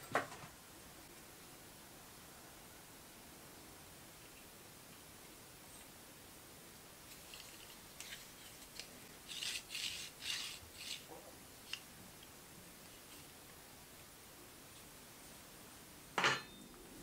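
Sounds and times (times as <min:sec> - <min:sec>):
caliper scraping rasps: 0:09.3 - 0:11.1.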